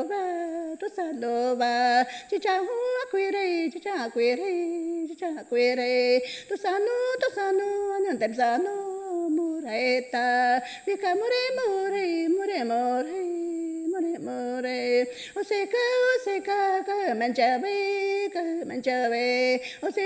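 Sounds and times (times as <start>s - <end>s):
woman singing unaccompanied: 0.0s - 20.0s.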